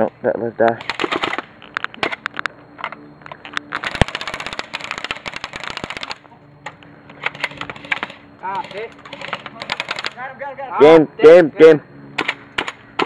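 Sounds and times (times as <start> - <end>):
airsoft rifle shots: 0.8 - 2.3, 3.7 - 6.2, 7.2 - 10.4, 12.2 - 13.0
full-auto burst of rapid clicks: 0.8 - 2.4, 3.7 - 6.3, 7.1 - 10.2.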